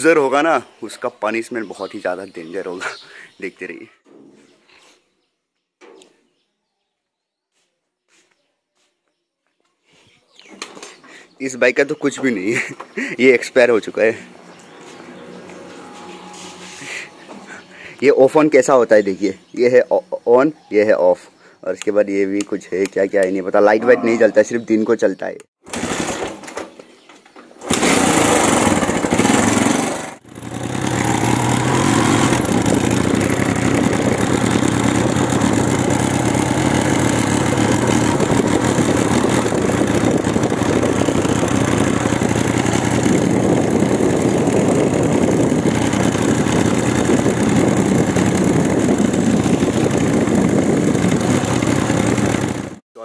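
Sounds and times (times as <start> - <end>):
motorcycle engine running: 27.7 - 52.8.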